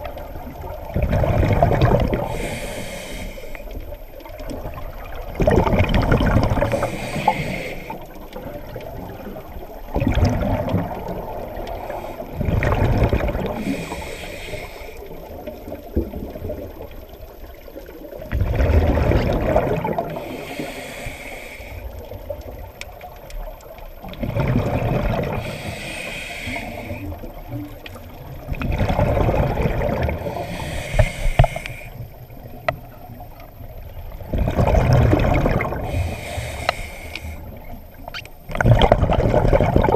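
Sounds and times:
exhaled bubbles rushing: 0.0 - 2.5, 4.2 - 14.0, 15.1 - 20.3, 24.0 - 25.7, 26.8 - 32.6, 34.0 - 36.2, 37.5 - 39.9
diver breathing through regulator: 2.1 - 3.8, 6.5 - 8.2, 11.6 - 12.6, 13.4 - 15.2, 20.0 - 22.1, 25.2 - 27.4, 30.1 - 32.2, 35.6 - 37.7.

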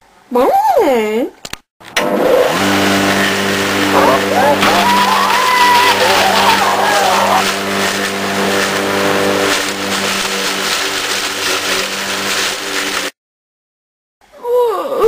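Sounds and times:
engine running: 2.0 - 13.1
wavering gliding wail: 3.9 - 7.7.

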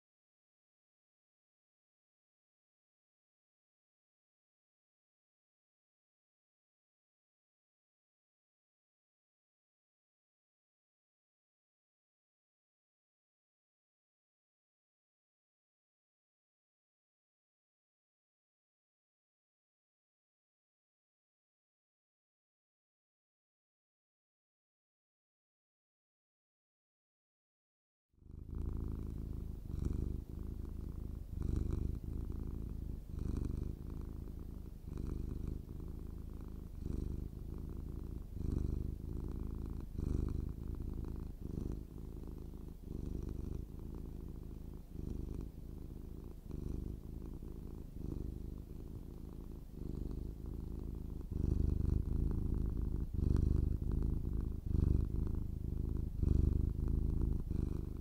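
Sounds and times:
cat purring: 28.2 - 58.0.

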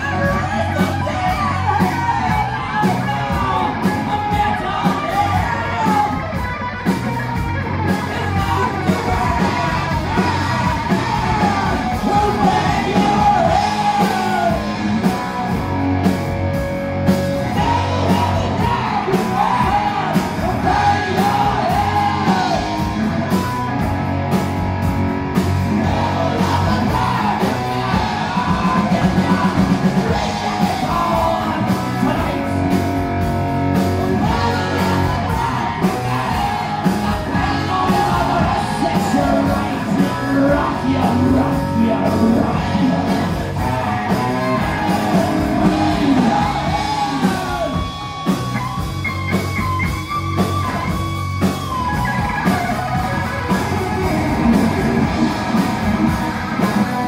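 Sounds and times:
singer half-yelling into microphone: 0.0 - 15.5, 17.4 - 23.7, 25.7 - 32.7, 34.0 - 48.9
live rock band: 0.0 - 57.0
fast drum roll: 33.8 - 57.0.

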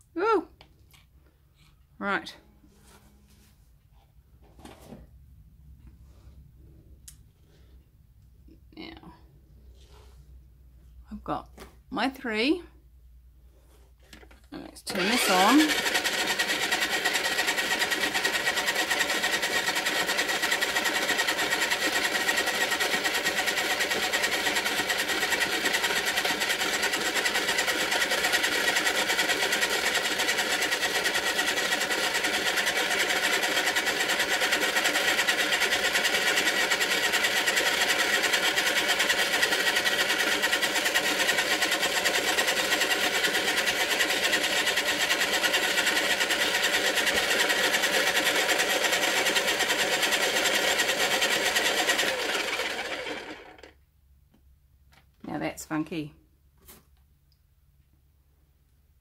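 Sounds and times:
pottery wheel motor whine: 14.8 - 53.8.

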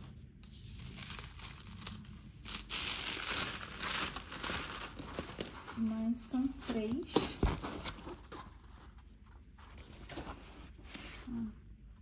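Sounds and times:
paper sheet rustling and crinkling: 0.0 - 11.5.

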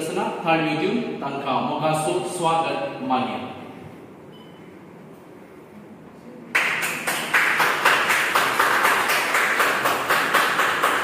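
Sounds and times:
group of people applauding: 6.5 - 11.0.

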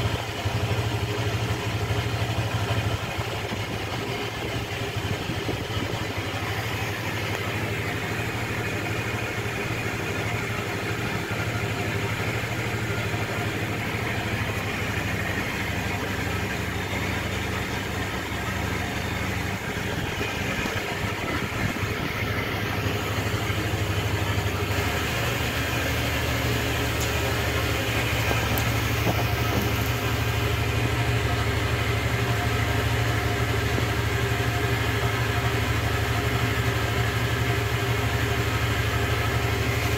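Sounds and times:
scooter engine idling: 0.0 - 39.9.

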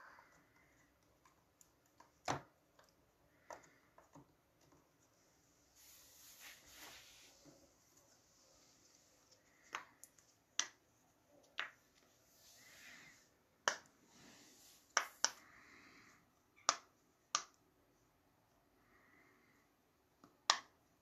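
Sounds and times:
faint rustling: 4.9 - 9.6.

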